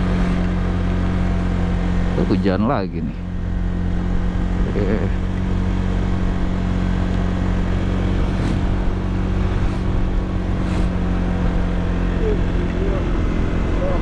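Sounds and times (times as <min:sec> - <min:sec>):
motor scooter engine running: 0:00.0 - 0:14.0
vehicles passing: 0:00.0 - 0:14.0
wind noise: 0:06.1 - 0:14.0.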